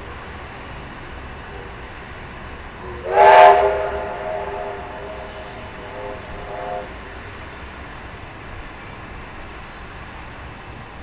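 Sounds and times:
steam locomotive whistle: 0:02.8 - 0:07.4.

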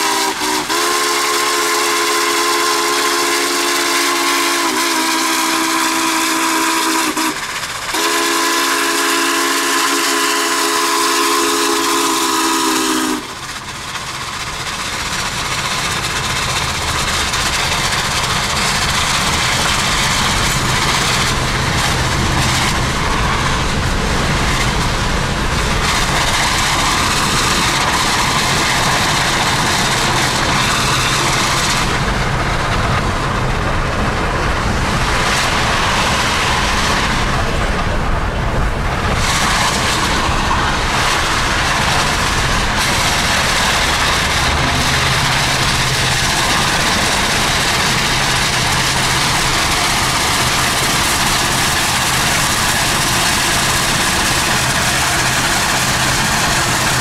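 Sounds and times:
steam whistle blowing: 0:00.0 - 0:13.4
road and wind rush: 0:13.2 - 0:57.0.

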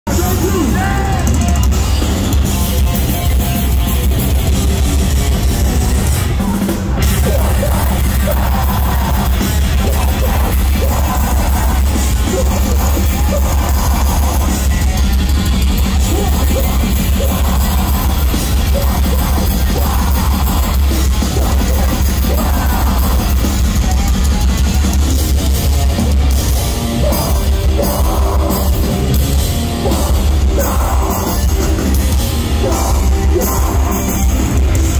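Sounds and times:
distorted electric guitars: 0:00.0 - 0:34.9
drum kit: 0:00.1 - 0:34.9
screamed vocals: 0:06.3 - 0:14.8, 0:15.9 - 0:23.4, 0:26.6 - 0:34.4.

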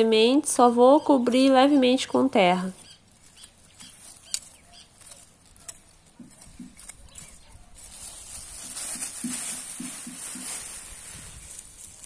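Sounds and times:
plastic bag rustling: 0:02.8 - 0:12.0
trowel scraping and tapping in soil: 0:03.4 - 0:07.4.

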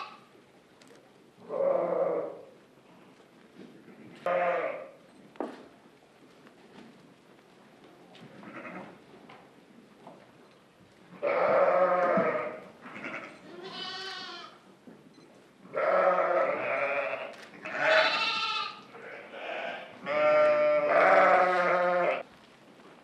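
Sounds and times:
sheep and goats bleating: 0:00.0 - 0:00.3, 0:01.4 - 0:02.5, 0:03.9 - 0:05.0, 0:08.4 - 0:08.9, 0:11.1 - 0:14.6, 0:15.6 - 0:22.2.

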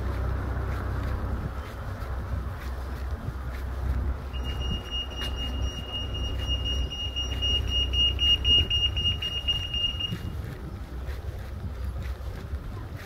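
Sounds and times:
wind rumbling on microphone: 0:00.0 - 0:13.0
high-pitched electronic tone: 0:04.3 - 0:10.3.

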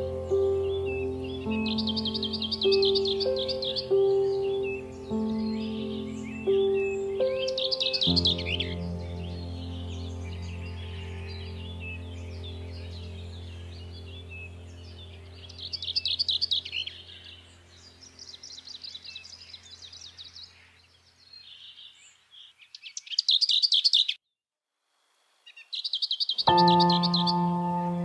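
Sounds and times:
music with held tones: 0:00.0 - 0:17.7, 0:26.5 - 0:28.0
low music drone: 0:00.0 - 0:18.4, 0:26.5 - 0:28.0
small birds chirping: 0:00.0 - 0:24.2, 0:25.4 - 0:28.0.

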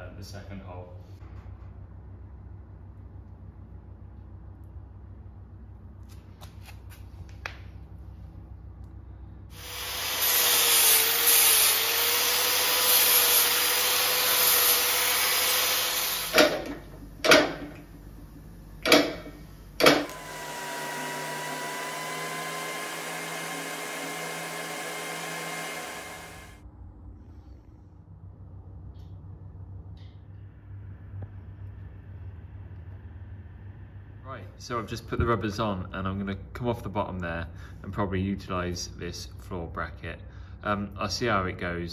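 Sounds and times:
angle grinder cutting steel: 0:09.5 - 0:16.5, 0:20.0 - 0:26.6.

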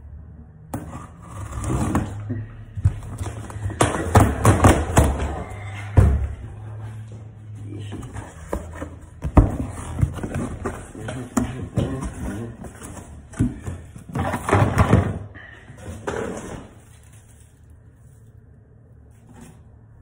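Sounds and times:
cardboard rustling: 0:07.8 - 0:15.2
cardboard knocks and scrapes: 0:07.9 - 0:15.1.

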